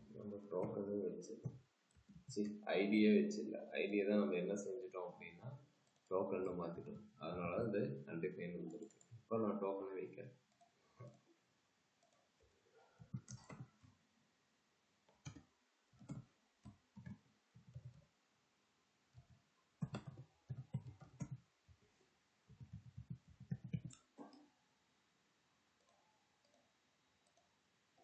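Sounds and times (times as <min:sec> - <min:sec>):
keyboard typing: 0:13.0 - 0:13.8, 0:15.1 - 0:15.4, 0:16.0 - 0:18.0, 0:19.2 - 0:21.8, 0:22.5 - 0:24.4.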